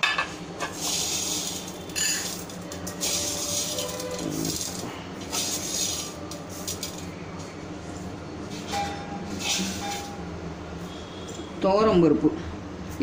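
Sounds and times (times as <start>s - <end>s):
steel vessels clinking: 0.6s - 7.1s, 8.5s - 10.3s
dry lentils rustling in steel tumbler: 0.8s - 7.1s.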